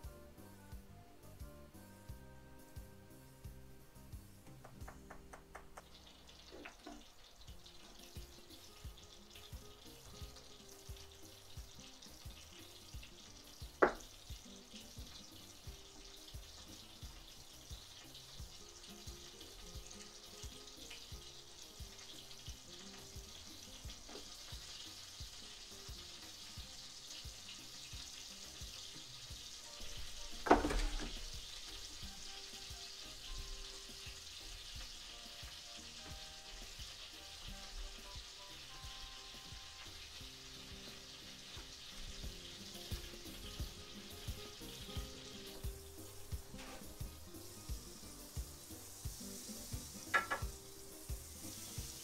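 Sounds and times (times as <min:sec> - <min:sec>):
frying sizzle in a pan: 0:00.0 - 0:52.0
metal saucepan clank: 0:50.1 - 0:50.5.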